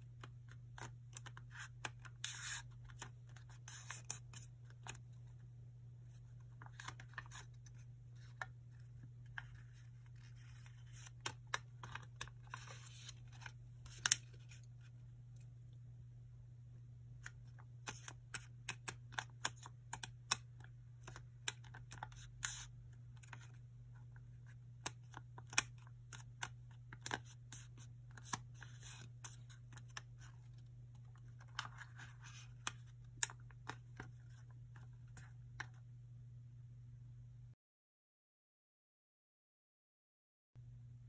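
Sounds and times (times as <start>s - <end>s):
paper folding and creasing: 0.0s - 5.4s, 6.0s - 15.0s, 24.2s - 35.8s
paper rustle: 0.2s - 5.3s, 6.1s - 14.8s, 24.9s - 35.7s.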